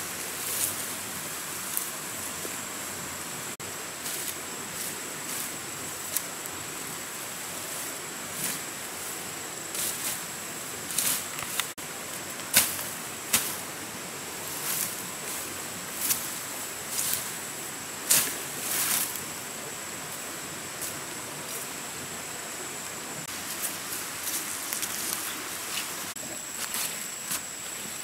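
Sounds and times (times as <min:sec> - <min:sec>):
swishes and rustling fronds: 0:00.0 - 0:22.0, 0:23.2 - 0:28.0
steady hiss: 0:00.0 - 0:28.0
machete chopping stems: 0:12.4 - 0:13.6.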